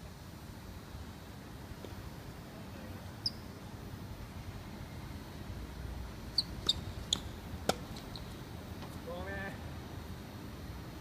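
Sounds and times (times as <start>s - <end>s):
shoes squeaking on hard court: 6.4s - 8.4s.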